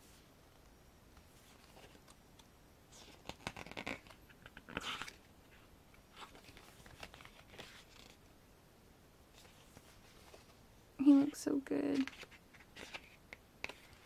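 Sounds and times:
paper pages rustling: 0:01.4 - 0:02.2, 0:02.9 - 0:08.2, 0:09.3 - 0:10.6, 0:11.9 - 0:14.0.

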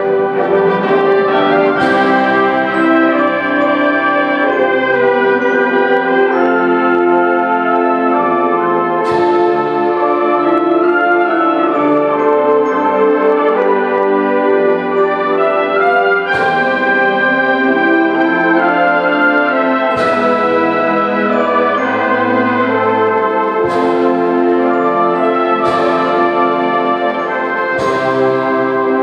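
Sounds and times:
band playing held chords: 0:00.0 - 0:29.0.

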